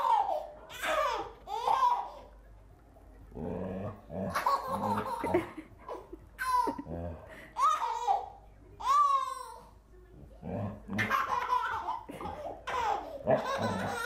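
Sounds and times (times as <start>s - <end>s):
baby laughing and squealing: 11.0s - 14.0s.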